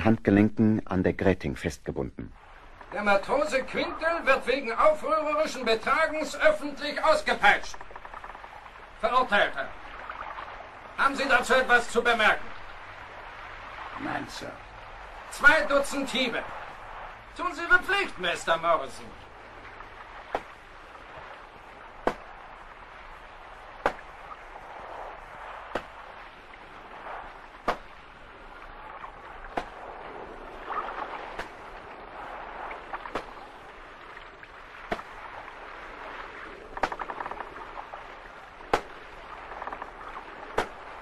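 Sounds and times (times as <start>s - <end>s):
steady background noise: 0.0s - 41.0s
whip lashes cracking: 22.0s - 22.4s, 23.8s - 24.3s, 25.7s - 26.1s, 27.6s - 28.0s, 29.5s - 29.9s, 30.8s - 31.8s, 33.0s - 33.5s, 34.9s - 35.2s, 38.7s - 39.1s, 40.6s - 40.9s.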